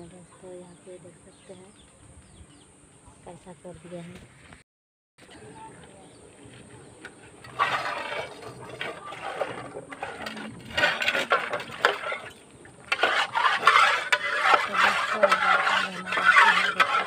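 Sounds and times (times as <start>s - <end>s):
pots being scrubbed: 7.3s - 17.0s
metal pots clinking: 7.4s - 17.0s.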